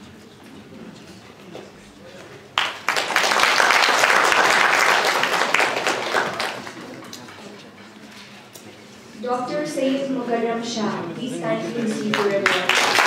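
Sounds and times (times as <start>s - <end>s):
audience applauding: 2.5s - 7.5s, 12.1s - 13.0s.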